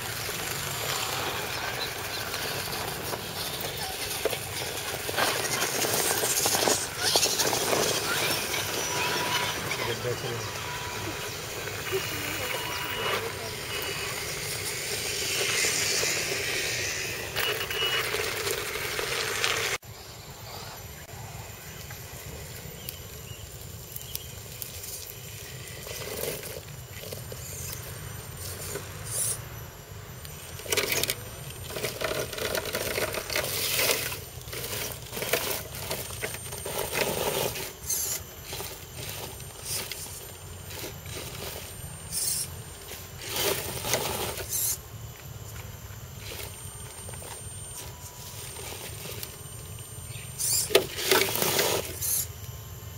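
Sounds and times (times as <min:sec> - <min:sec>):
tyres crunching over gravel: 0:00.0 - 0:19.8, 0:22.8 - 0:29.1, 0:30.3 - 0:52.2.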